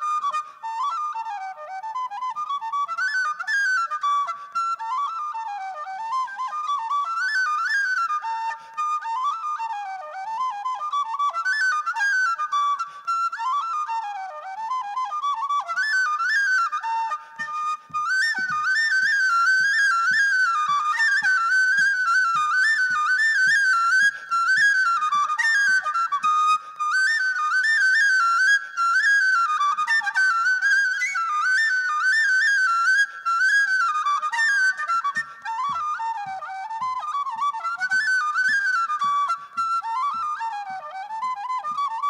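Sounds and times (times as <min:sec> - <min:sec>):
tin whistle folk tune: 0:00.0 - 0:42.0.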